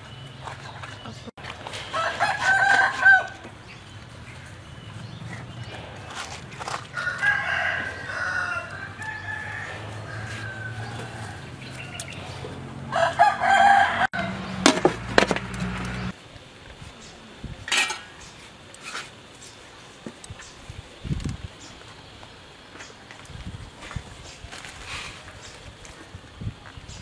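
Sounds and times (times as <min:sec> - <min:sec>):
rooster crowing: 0:01.9 - 0:03.4, 0:06.8 - 0:14.6.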